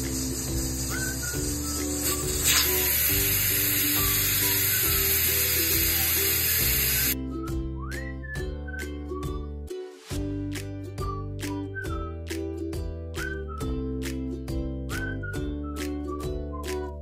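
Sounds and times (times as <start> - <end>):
steam hissing from pressure cooker: 0.0 - 7.2
background music: 0.0 - 17.0.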